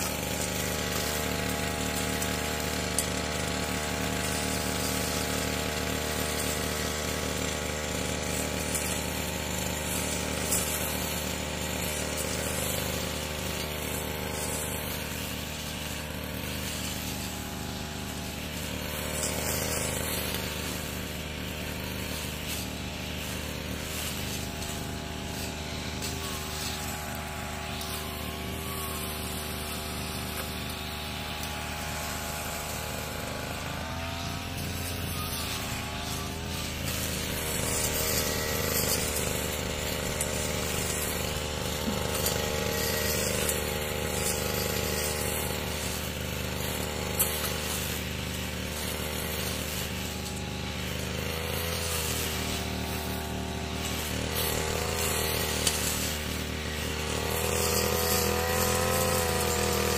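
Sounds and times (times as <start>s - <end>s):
grass cutter engine running: 0.0s - 59.9s.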